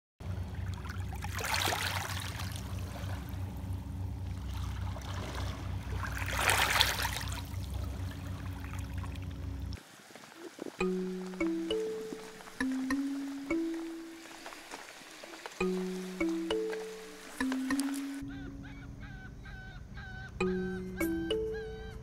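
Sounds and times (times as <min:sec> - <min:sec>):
steady low hum: 0:00.2 - 0:09.8
waves lapping over stones: 0:00.7 - 0:03.3, 0:04.5 - 0:09.2, 0:09.8 - 0:18.2.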